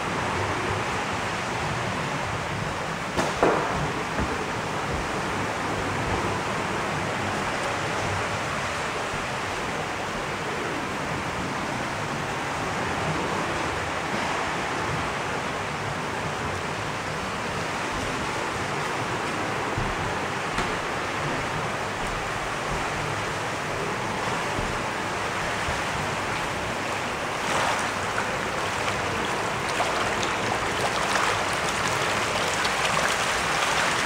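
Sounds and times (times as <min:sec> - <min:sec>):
aerated water splashing and bubbling: 0:17.8 - 0:34.0.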